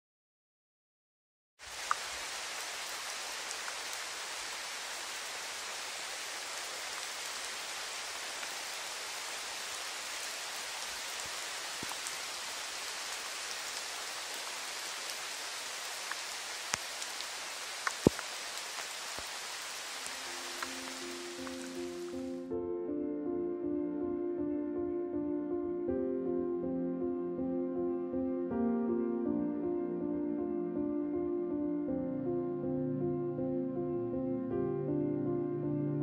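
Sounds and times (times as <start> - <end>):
rain falling on foliage: 1.6 - 22.4
water drips tapping: 17.8 - 18.3.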